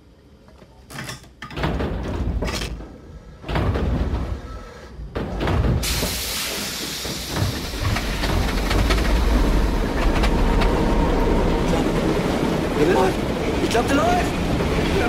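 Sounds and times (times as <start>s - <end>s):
loud hiss: 5.8s - 8.8s
diesel engines rumbling: 6.6s - 15.0s.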